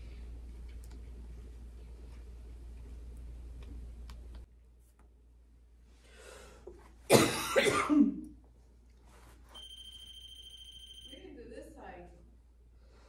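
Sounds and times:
person coughing harshly: 7.1 - 8.2.

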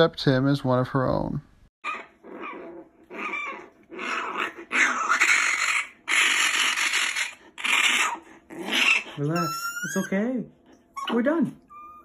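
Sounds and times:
raccoon raspy cries: 1.8 - 10.2.

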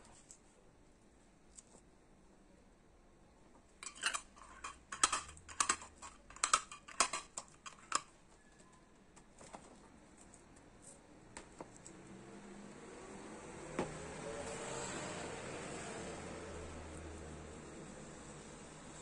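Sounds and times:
metal lid clicking and scraping on jar: 3.8 - 8.1.

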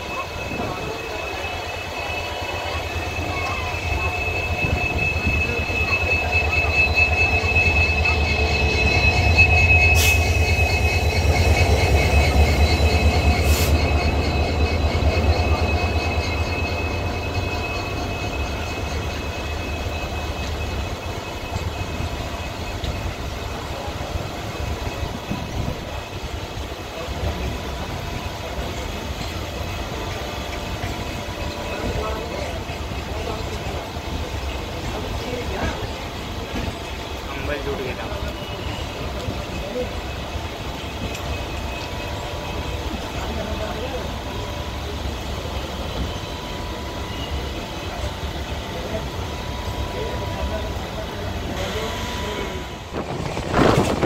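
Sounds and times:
high-pitched squeal: 0.0 - 26.2
diesel locomotive engine rumbling: 0.0 - 54.0.

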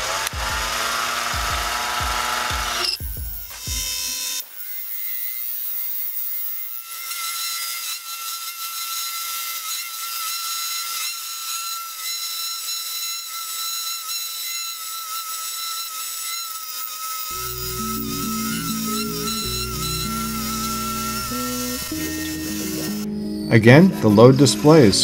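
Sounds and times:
lathe whining: 0.0 - 25.0
parting tool scraping hiss: 17.3 - 23.5.

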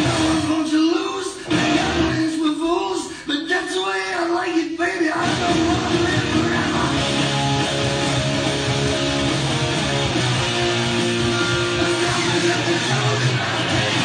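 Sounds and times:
electric guitar strummed: 0.0 - 0.6, 1.4 - 2.2, 5.2 - 14.0.

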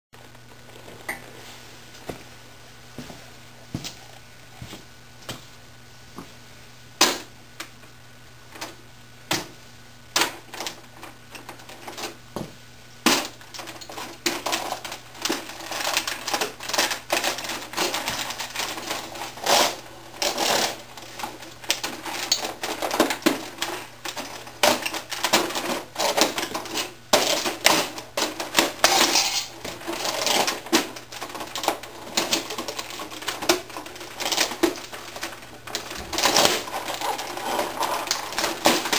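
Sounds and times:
plastic keyboard cracking under boots: 10.1 - 12.2, 13.0 - 38.9.

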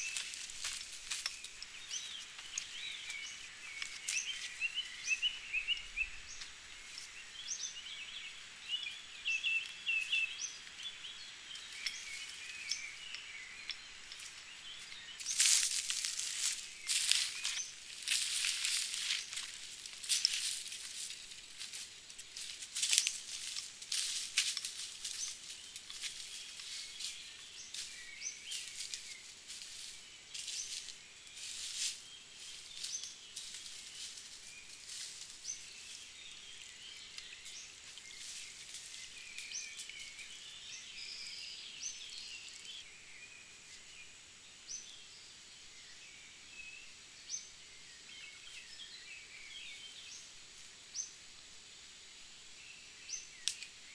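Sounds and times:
footsteps in dry leaves and twigs: 0.0 - 42.8
birds chirping: 0.0 - 50.3.

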